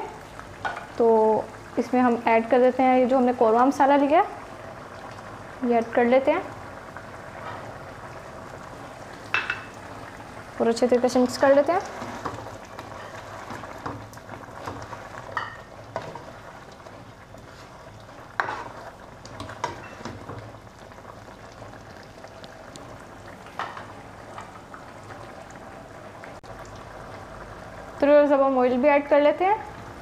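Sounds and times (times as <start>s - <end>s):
food simmering and sizzling: 0.0s - 30.0s
spatula scraping and tapping pan: 18.4s - 18.8s.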